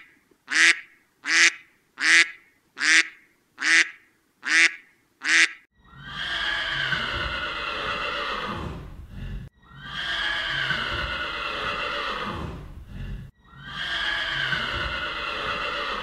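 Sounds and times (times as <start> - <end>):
horse whinnying: 5.9 - 8.9, 9.6 - 12.7, 13.5 - 16.0.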